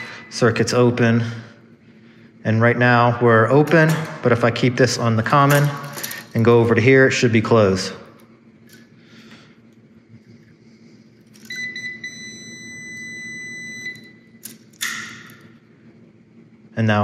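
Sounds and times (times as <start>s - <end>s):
meter continuity beep: 0.0s - 0.7s, 11.4s - 14.4s.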